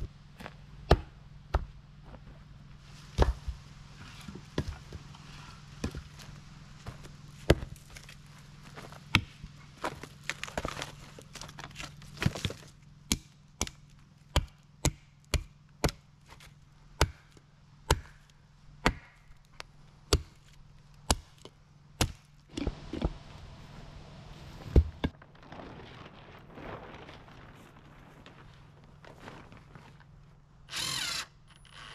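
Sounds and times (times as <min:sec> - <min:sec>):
hatchet splitting wood: 0:00.9 - 0:01.7, 0:11.3 - 0:23.2.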